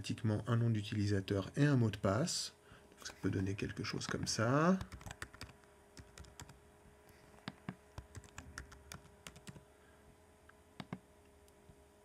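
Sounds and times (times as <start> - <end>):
faint steady hum: 0.0 - 12.0
computer keyboard typing: 4.8 - 6.6, 7.5 - 9.6, 10.8 - 11.0.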